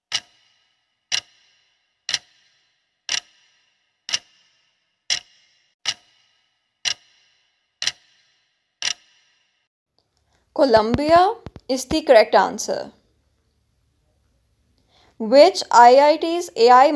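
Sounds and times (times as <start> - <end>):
clock ticking with ringing tail: 0.0 - 9.6.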